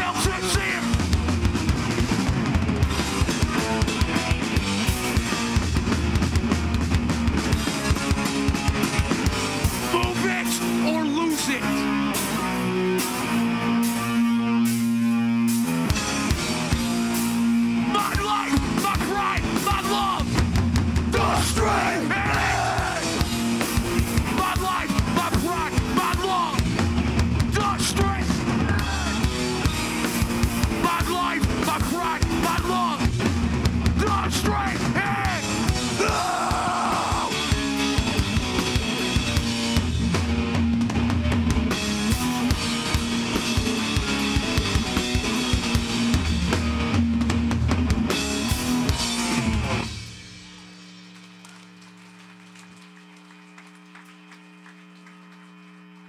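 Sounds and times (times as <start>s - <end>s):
live hardcore band playing: 0.0s - 51.1s
pounding drum kit: 0.0s - 51.3s.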